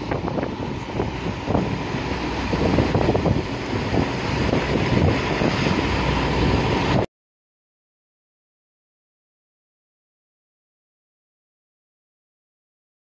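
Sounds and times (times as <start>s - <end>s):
motorboat engine running: 0.0s - 7.0s
water rushing along hull: 0.0s - 7.1s
wind buffeting microphone: 0.0s - 7.1s.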